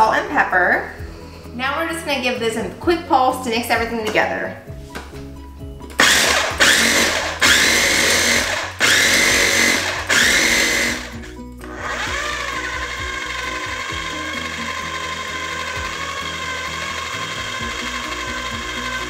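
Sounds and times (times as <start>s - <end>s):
food processor motor whine: 6.0s - 19.0s.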